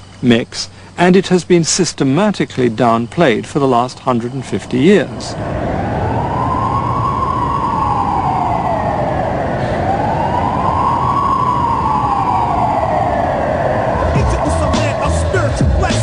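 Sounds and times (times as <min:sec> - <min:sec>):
siren wailing: 0:04.1 - 0:16.0.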